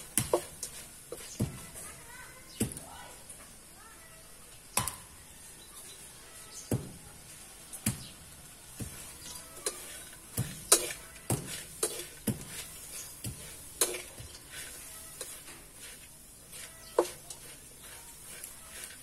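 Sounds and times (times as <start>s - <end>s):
metal ladle scraping a wok: 0.0s - 1.9s, 8.8s - 19.0s
faint hiss: 0.0s - 19.0s.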